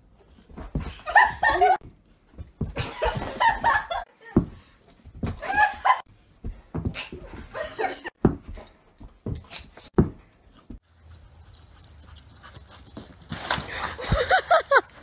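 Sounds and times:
sharp knocks and scuffles: 1.8s - 3.6s, 6.4s - 7.5s, 8.1s - 10.9s.

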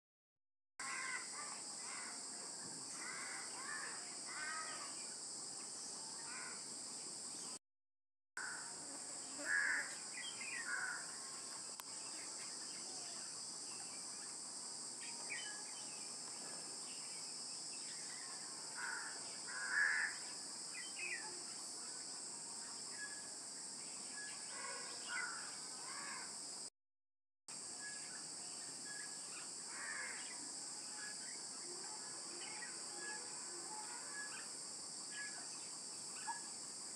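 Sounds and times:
crows cawing: 0.8s - 1.3s, 8.4s - 8.7s, 9.4s - 10.0s, 10.7s - 11.0s, 18.8s - 20.2s, 25.2s - 26.3s, 29.7s - 30.2s.

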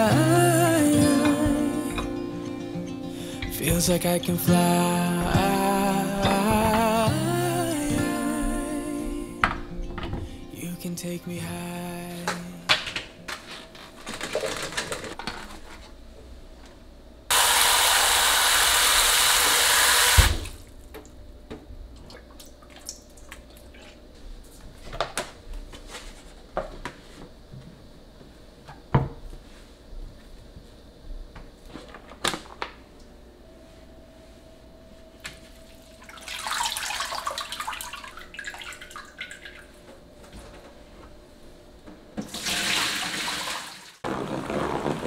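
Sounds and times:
kitchen tap running: 42.2s - 44.0s.

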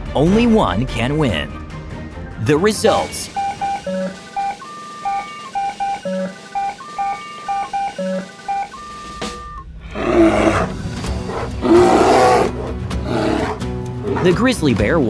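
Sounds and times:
electronic computer beeps: 2.5s - 9.8s
electronic sweep: 2.8s - 10.6s
deep animal roars: 9.8s - 14.4s.

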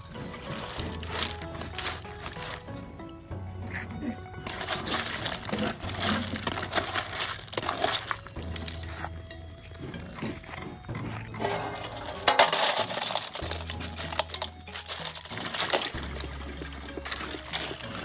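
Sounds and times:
metal ladle stirring shells: 0.0s - 2.8s, 4.4s - 10.1s, 11.4s - 18.0s
shells scraped into metal basin: 0.0s - 2.8s, 4.4s - 9.1s, 11.3s - 18.0s
shells clattering and clinking: 0.2s - 2.8s, 11.4s - 18.0s.

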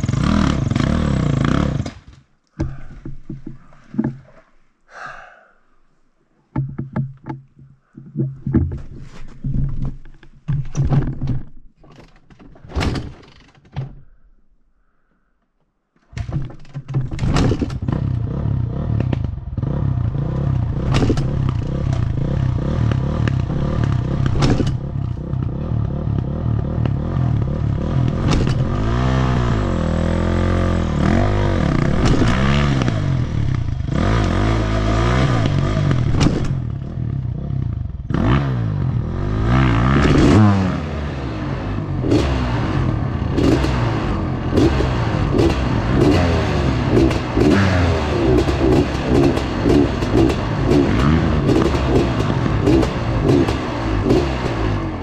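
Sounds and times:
dirt bike engine revving: 0.0s - 2.0s, 17.8s - 55.0s
bike knocking over rocks: 6.5s - 11.7s.

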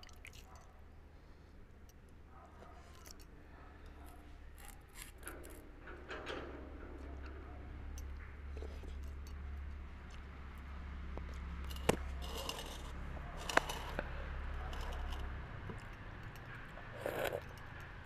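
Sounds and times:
handling noise: 11.1s - 18.0s.

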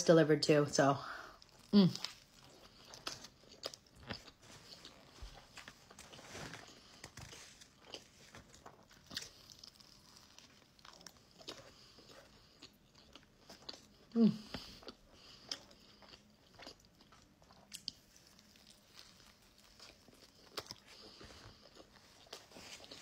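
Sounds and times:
person chewing sandwich: 1.4s - 23.0s.

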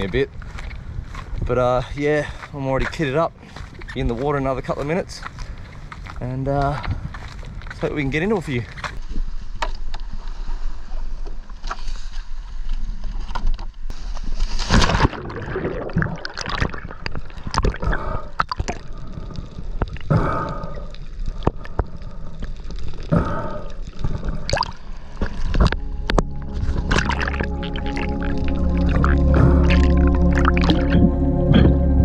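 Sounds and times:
muffled underwater bubbling: 15.0s - 31.8s.

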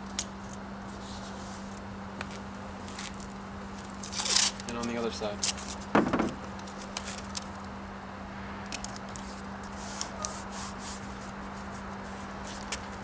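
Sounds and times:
tape pulled and torn: 2.9s - 4.8s.

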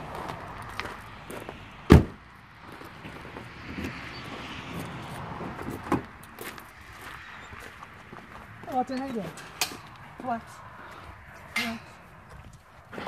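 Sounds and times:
sharp thump: 1.9s - 2.2s
truck door slamming: 1.9s - 2.2s.

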